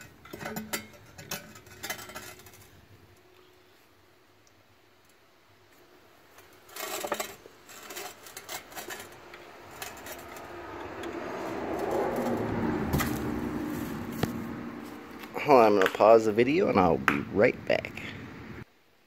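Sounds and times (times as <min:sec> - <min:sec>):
metal bolts clinking: 0:00.0 - 0:02.7.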